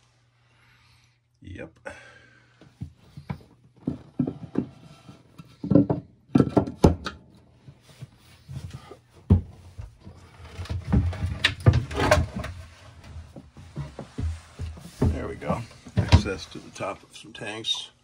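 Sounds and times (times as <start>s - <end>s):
wooden floorboards knocking: 2.8s - 7.1s, 9.3s - 16.4s.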